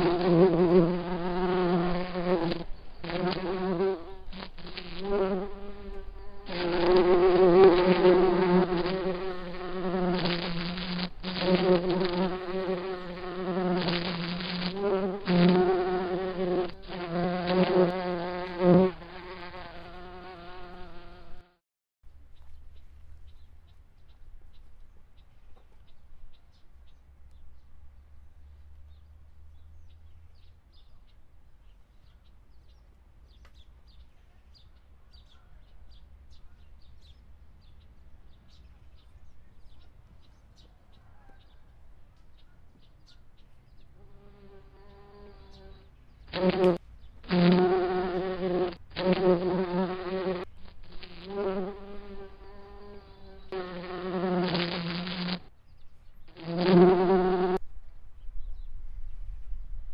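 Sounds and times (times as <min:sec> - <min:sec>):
insect buzzing close: 0:00.0 - 0:21.6, 0:44.0 - 0:55.5, 0:56.3 - 0:57.6.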